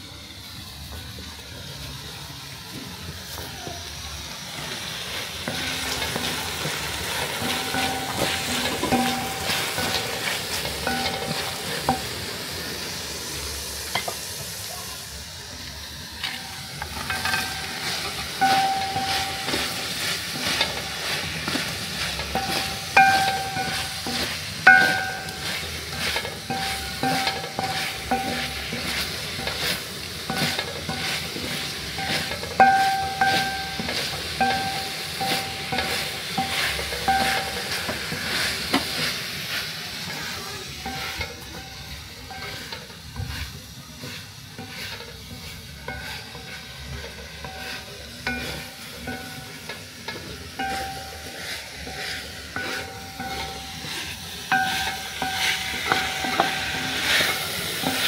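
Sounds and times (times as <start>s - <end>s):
wooden spoon stirring in pot: 4.4s - 12.4s, 16.2s - 58.0s
squeaky pot tone: 5.4s - 12.0s, 16.2s - 38.4s, 50.6s - 58.0s.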